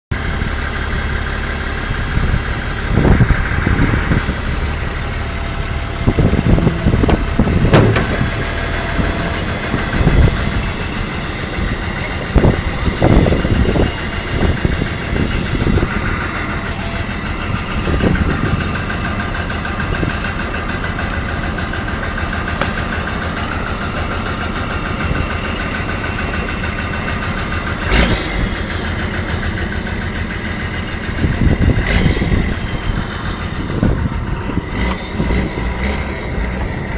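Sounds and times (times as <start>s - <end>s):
truck engine running: 0.1s - 36.9s
sharp knocks: 7.0s - 8.3s.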